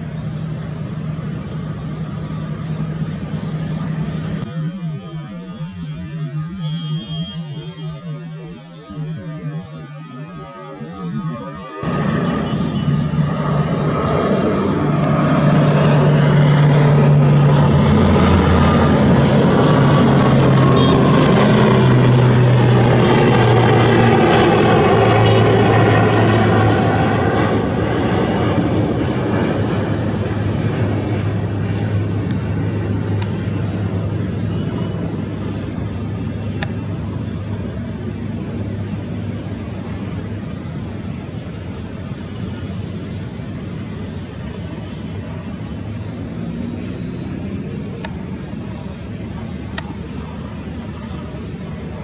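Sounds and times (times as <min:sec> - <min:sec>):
high turbine whine: 0:00.0 - 0:52.0
propeller drone: 0:00.0 - 0:52.0.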